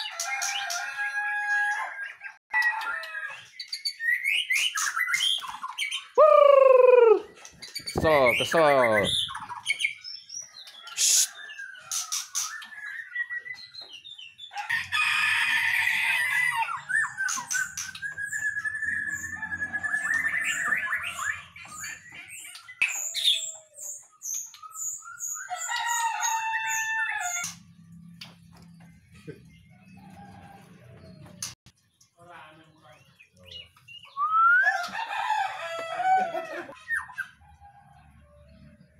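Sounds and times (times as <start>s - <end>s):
songbird singing: 1.8s - 14.7s, 15.9s - 35.7s.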